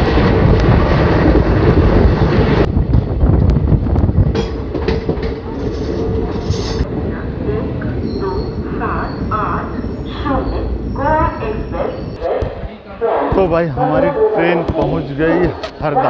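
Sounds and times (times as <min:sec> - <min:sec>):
clickety-clack over rail joints: 0:00.0 - 0:05.8
train wheels rumbling on track: 0:00.0 - 0:12.8.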